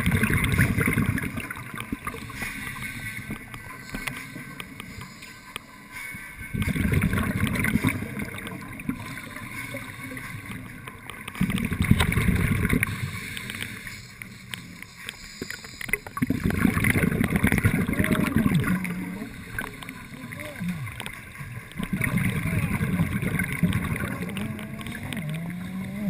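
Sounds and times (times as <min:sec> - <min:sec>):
underwater regulator bubbling exhalations: 0:00.0 - 0:02.3, 0:06.5 - 0:09.4, 0:11.4 - 0:13.6, 0:15.9 - 0:26.0.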